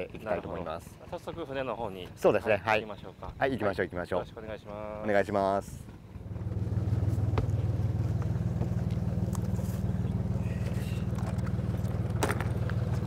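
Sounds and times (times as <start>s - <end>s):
boat engine idling: 6.1s - 13.0s.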